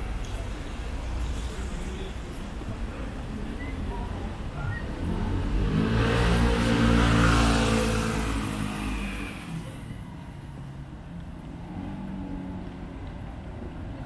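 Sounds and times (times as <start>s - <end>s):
vehicle engine passing by: 4.9s - 9.9s.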